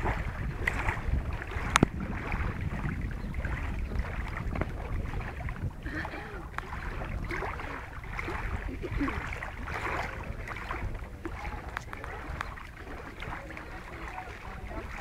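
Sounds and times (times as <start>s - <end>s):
wind buffeting microphone: 0.0s - 15.0s
faint voices: 5.8s - 15.0s.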